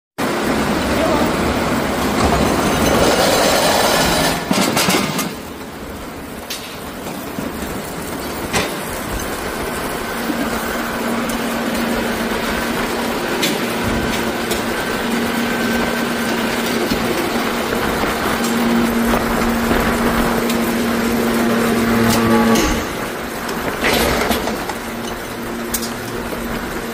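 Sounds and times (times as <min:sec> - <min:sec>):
forging press machinery humming: 0:00.2 - 0:26.9
held machine tone: 0:21.1 - 0:23.1.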